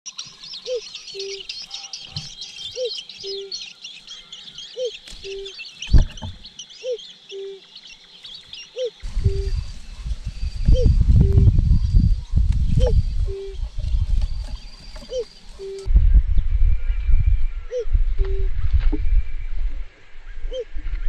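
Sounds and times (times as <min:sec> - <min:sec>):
birds chirping: 0:00.1 - 0:21.0
loud thump: 0:05.9 - 0:06.4
low rumble: 0:09.0 - 0:14.9, 0:15.6 - 0:21.0.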